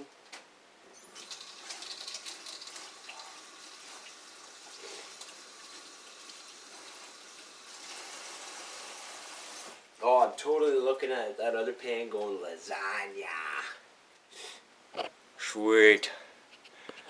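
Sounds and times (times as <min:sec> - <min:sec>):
faucet running into sink: 0:01.0 - 0:09.8.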